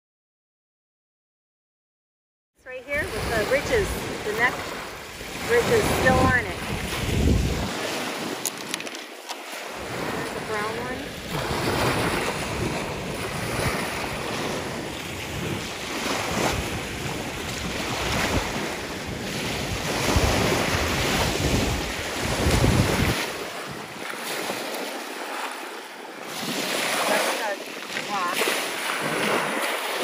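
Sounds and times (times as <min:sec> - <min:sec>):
waves washing onto shore: 0:02.7 - 0:30.0
wind buffeting microphone: 0:02.9 - 0:08.9, 0:09.7 - 0:25.4.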